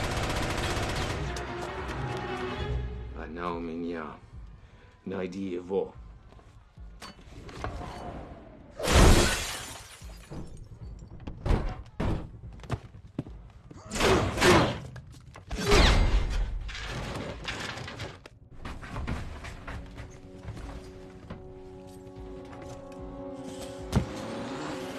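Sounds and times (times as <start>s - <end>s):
glass shattering: 8.8s - 10.6s.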